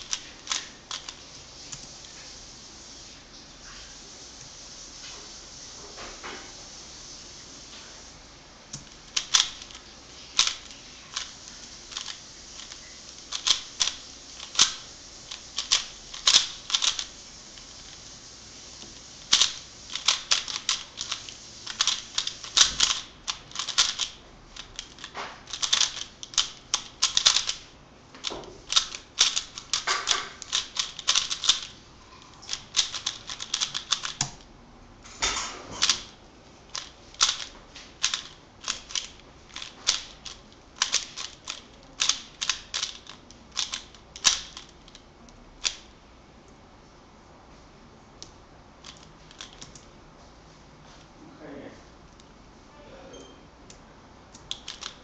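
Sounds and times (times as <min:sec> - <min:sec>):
puzzle cube clicking: 0:00.0 - 0:01.2, 0:08.7 - 0:09.8, 0:10.4 - 0:18.0, 0:19.2 - 0:27.7, 0:28.7 - 0:31.7, 0:32.5 - 0:34.4, 0:36.7 - 0:45.0, 0:54.4 - 0:55.0.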